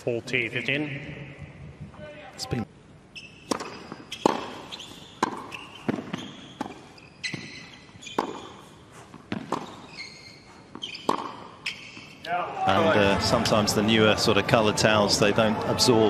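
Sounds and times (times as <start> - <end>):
sneakers squeaking on court: 3.1 - 12.2
tennis ball hit by racquet: 3.4 - 9.8, 10.7 - 12.0
ball bouncing: 3.5 - 10.0, 10.7 - 12.1.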